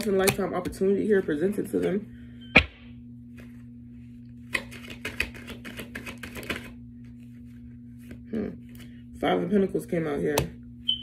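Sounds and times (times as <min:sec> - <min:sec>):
steady low hum: 0:00.0 - 0:11.0
cards being shuffled: 0:03.3 - 0:08.9.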